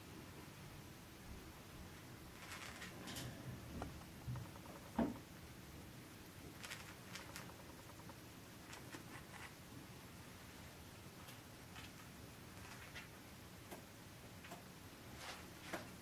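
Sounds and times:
birds clicking and tapping in cage: 0:02.4 - 0:05.2.

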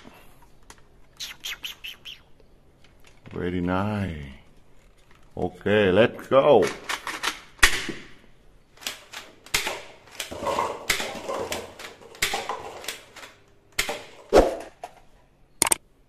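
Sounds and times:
paper cups clattering: 0:08.9 - 0:13.4.

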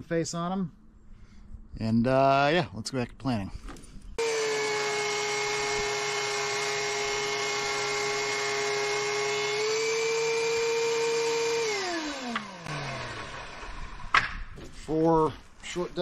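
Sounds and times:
thickness planer motor whine: 0:04.2 - 0:14.2.

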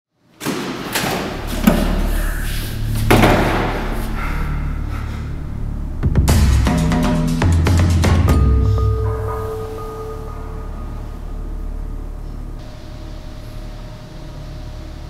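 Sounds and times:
doors banging and slamming: 0:00.4 - 0:02.2, 0:02.9 - 0:04.5
dramatic music with drum hits: 0:01.2 - 0:12.9
low steady drone: 0:01.3 - 0:15.0.

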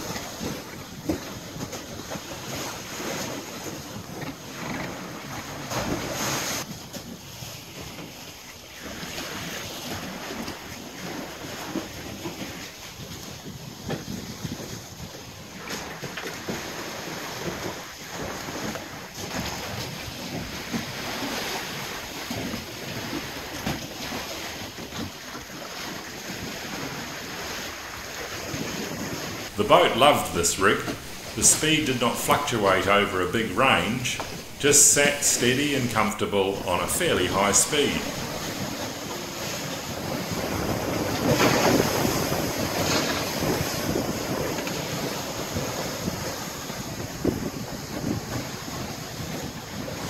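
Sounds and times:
sea splashing past hull: 0:00.0 - 0:50.0
wind noise on microphone: 0:40.0 - 0:50.0.

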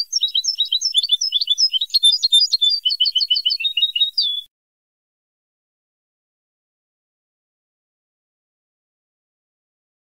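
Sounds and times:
goldfinch song: 0:00.0 - 0:04.5.

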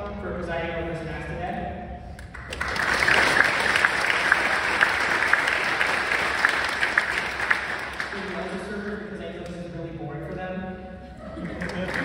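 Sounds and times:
audience clapping: 0:02.2 - 0:09.0, 0:11.4 - 0:12.0.

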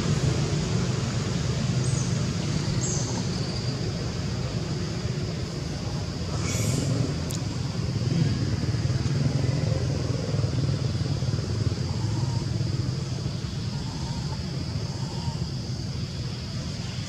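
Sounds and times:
high-pitched hiss: 0:00.0 - 0:09.7.

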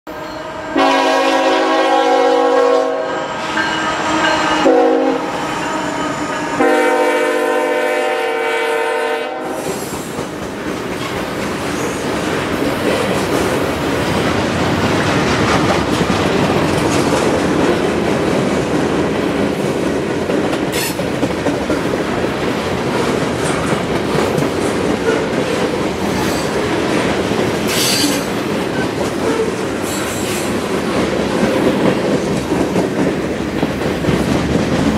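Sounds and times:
locomotive horn blasts: 0:00.1 - 0:09.7.

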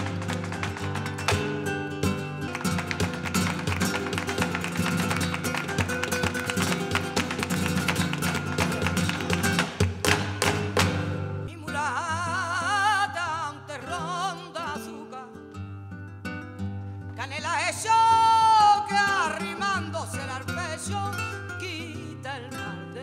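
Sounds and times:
hand-clapping: 0:00.0 - 0:11.2
rapid dance footwork: 0:00.0 - 0:11.2
acoustic guitar: 0:00.0 - 0:23.0
person singing with vibrato: 0:11.5 - 0:15.6, 0:17.2 - 0:23.0.

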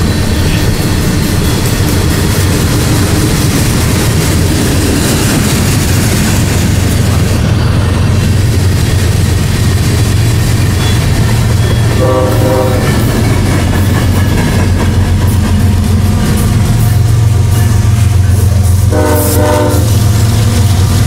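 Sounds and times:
diesel locomotive engine drone: 0:00.0 - 0:21.0
freight train wheels on rails: 0:00.0 - 0:21.0
locomotive horn blast: 0:11.6 - 0:13.1, 0:17.7 - 0:20.6.

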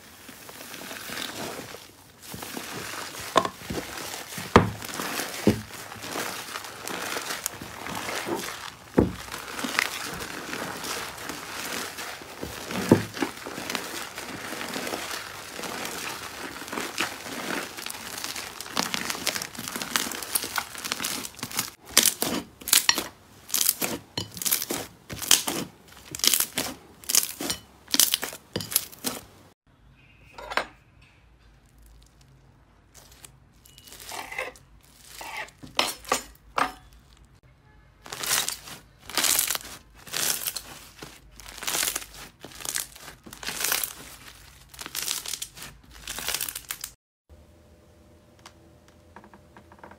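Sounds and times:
slime squelches: 0:00.0 - 0:29.4, 0:38.0 - 0:46.9
slime crackling and popping: 0:00.1 - 0:29.3, 0:38.0 - 0:47.0.

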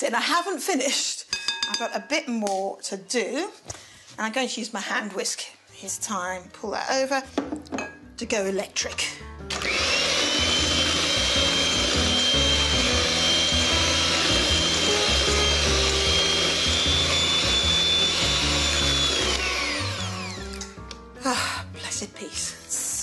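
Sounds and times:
electric hand mixer whining: 0:09.5 - 0:20.8.

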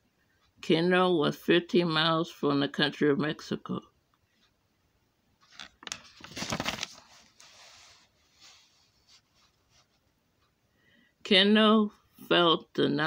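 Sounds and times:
paper page turning: 0:05.4 - 0:09.8.

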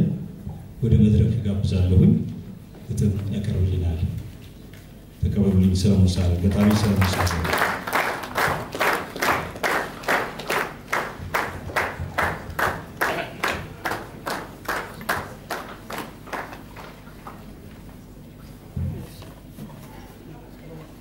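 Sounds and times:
audience clapping in rhythm: 0:06.1 - 0:17.4.

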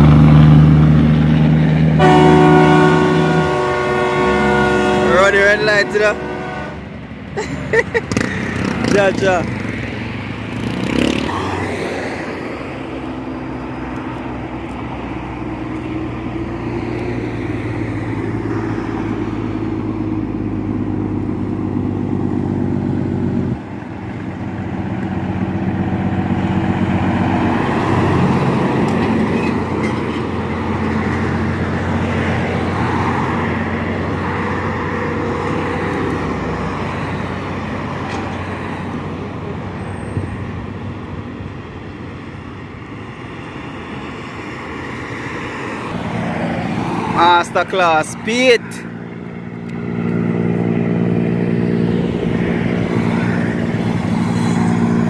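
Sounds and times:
diesel trucks passing: 0:00.0 - 0:55.0
road noise: 0:00.0 - 0:55.0.

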